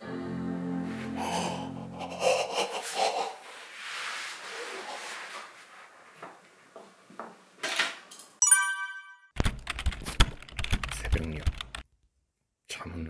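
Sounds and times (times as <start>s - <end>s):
bright bell-like ding: 8.4s - 9.3s
typing-like clicks: 9.4s - 11.8s.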